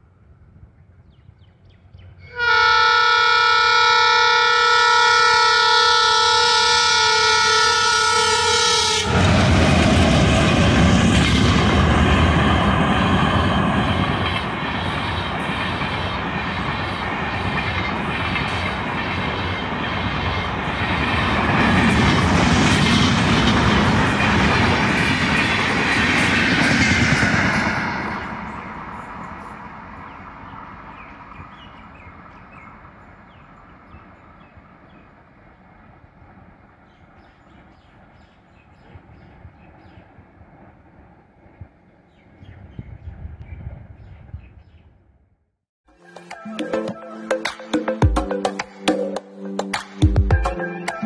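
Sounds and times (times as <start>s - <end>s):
train passing at speed: 0.0s - 45.2s
locomotive horn blast: 2.3s - 9.6s.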